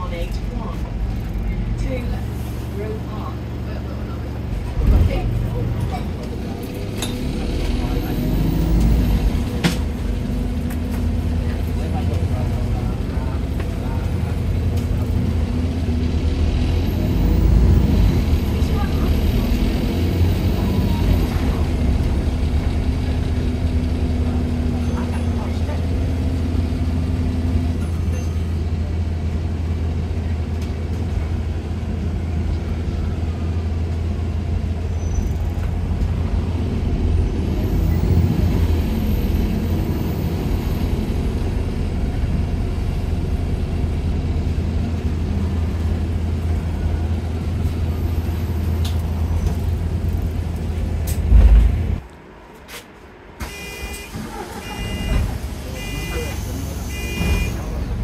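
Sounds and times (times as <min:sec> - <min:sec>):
bus engine humming: 0:00.0 - 0:58.0
short electronic beeps: 0:53.4 - 0:55.2, 0:55.8 - 0:57.6.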